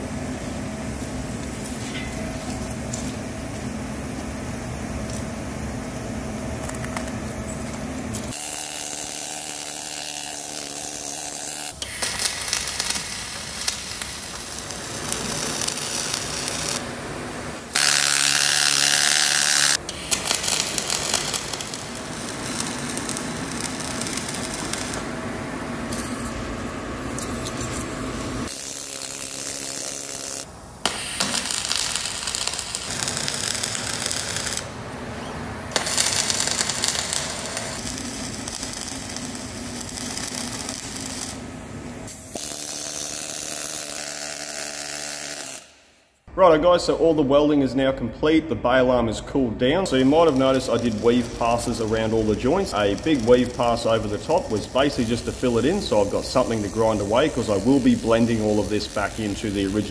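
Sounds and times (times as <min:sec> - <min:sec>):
arc welding hiss: 0:08.2 - 0:25.0, 0:28.0 - 0:34.7, 0:35.7 - 0:45.7, 0:49.9 - 0:59.9.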